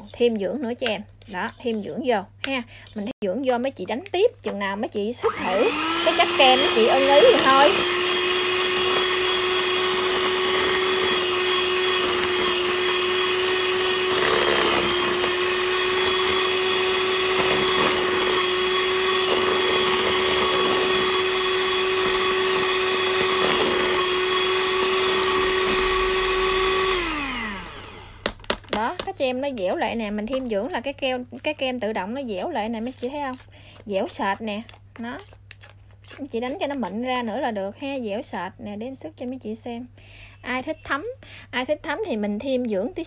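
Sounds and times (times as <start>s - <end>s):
electric hand mixer whining: 5.2s - 29.0s.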